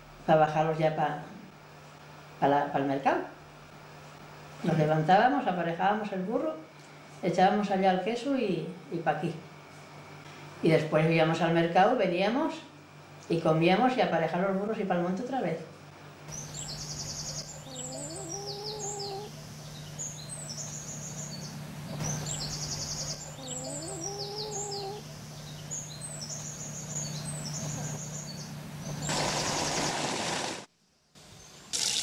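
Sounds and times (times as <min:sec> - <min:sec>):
steady low hum: 0:00.0 - 0:31.7
songbird trilling: 0:16.3 - 0:29.8
lower drawn-out bird call: 0:20.7 - 0:29.9.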